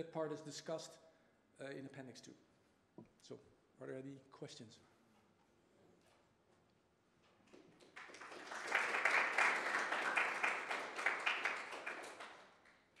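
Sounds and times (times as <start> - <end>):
audience applauding: 7.6 - 12.8.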